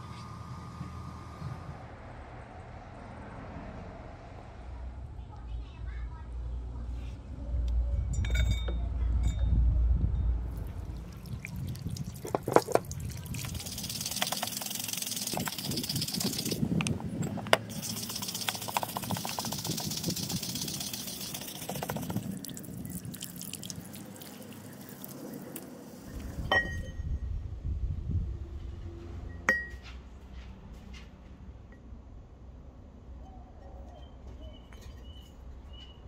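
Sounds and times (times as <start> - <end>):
water splashing on metal: 10.6 - 16.6, 17.6 - 25.7.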